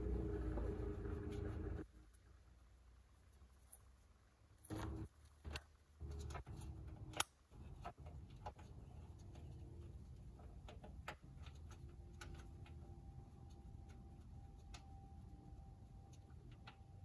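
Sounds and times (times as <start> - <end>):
low rumble: 0.0 - 1.8.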